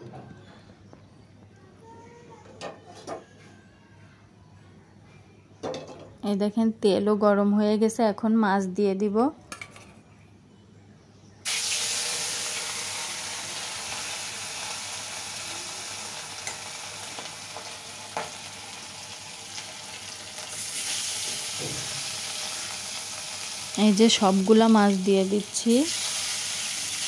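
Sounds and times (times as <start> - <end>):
fish sizzling in hot oil: 11.4 - 27.0.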